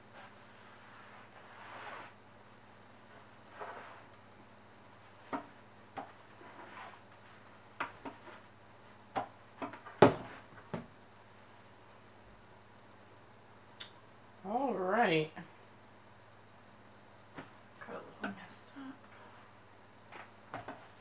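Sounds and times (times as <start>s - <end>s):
iron sliding on fabric: 0.1s - 2.2s, 3.5s - 4.1s, 6.3s - 7.1s.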